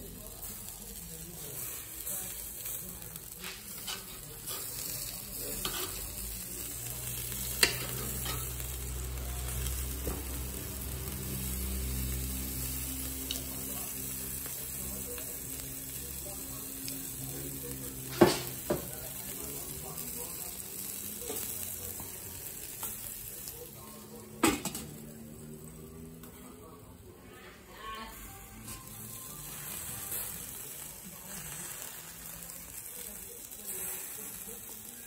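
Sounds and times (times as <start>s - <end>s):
sausage sizzling over charcoal: 0.0s - 35.0s.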